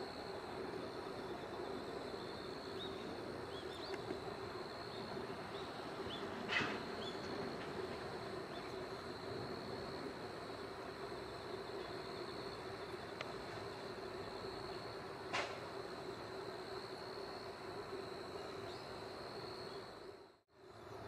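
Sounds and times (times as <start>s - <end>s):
insect drone: 0.0s - 21.0s.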